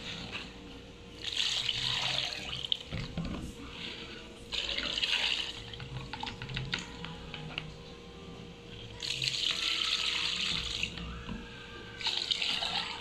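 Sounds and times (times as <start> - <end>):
liquid pouring and splashing: 1.2 - 3.3, 4.5 - 6.3, 12.0 - 13.0.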